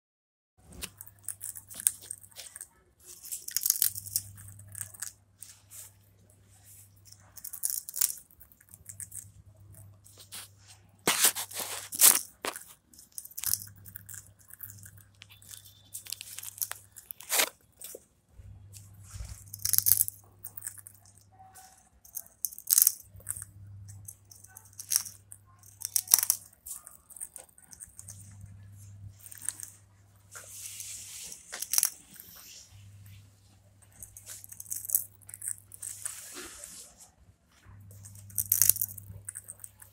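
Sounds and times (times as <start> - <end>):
parakeet crunching dry snack: 0.6 - 18.0, 18.9 - 32.5, 33.8 - 36.5, 37.7 - 39.9
faint low hum: 0.6 - 39.9.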